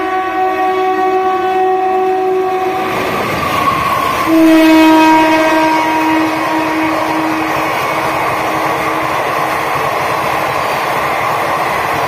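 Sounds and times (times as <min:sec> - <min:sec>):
locomotive horn long note: 0:00.0 - 0:02.9, 0:04.2 - 0:09.2
train coaches rumbling on rails: 0:00.0 - 0:12.0.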